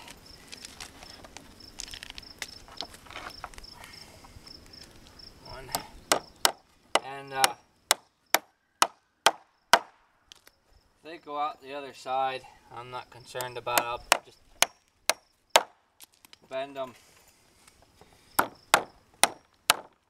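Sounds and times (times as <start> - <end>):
hammer driving nail into wood: 5.7 - 10.0, 13.8 - 15.8, 18.4 - 20.0.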